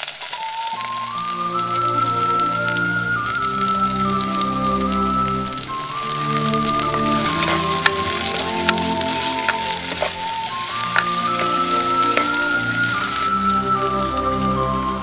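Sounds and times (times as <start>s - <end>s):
oil sizzling in a pot: 0.0s - 15.0s
soft instrumental music: 0.4s - 15.0s
sharp crackles: 5.4s - 13.5s.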